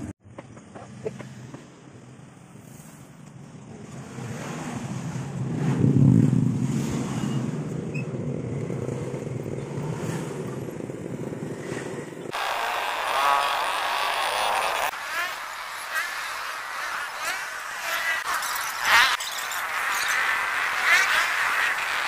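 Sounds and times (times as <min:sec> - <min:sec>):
high-pitched traffic: 0:00.0 - 0:22.0
motorcycles and scooters passing: 0:03.6 - 0:22.0.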